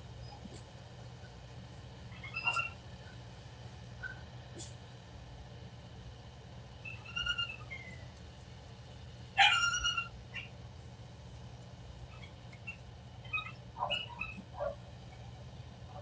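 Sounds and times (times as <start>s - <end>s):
dog whining and whimpering: 2.2s - 2.8s, 9.4s - 10.0s, 13.3s - 14.5s.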